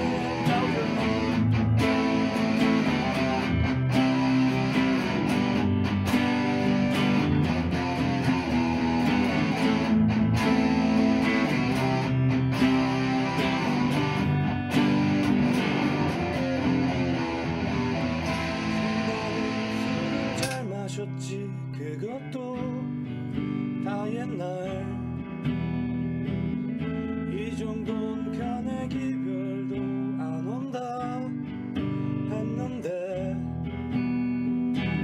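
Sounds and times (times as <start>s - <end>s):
backing track music: 0.0s - 21.1s
electric guitar playing: 0.0s - 35.0s.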